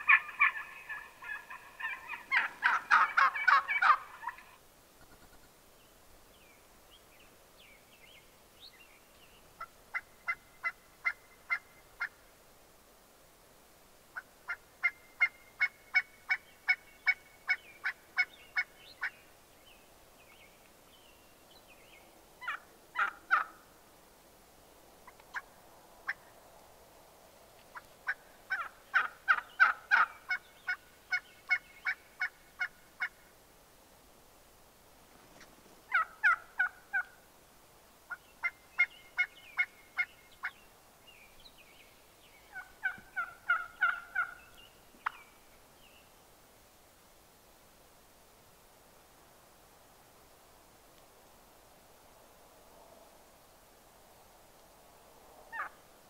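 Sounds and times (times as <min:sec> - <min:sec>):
turkeys yelping: 0:00.0 - 0:04.6, 0:14.5 - 0:19.1, 0:22.4 - 0:23.6, 0:25.0 - 0:26.2, 0:27.7 - 0:33.1, 0:35.9 - 0:37.2, 0:42.5 - 0:45.3, 0:55.5 - 0:55.8.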